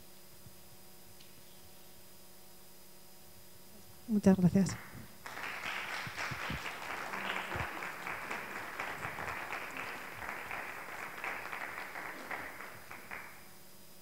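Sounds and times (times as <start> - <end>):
audience applauding: 4.7 - 13.6.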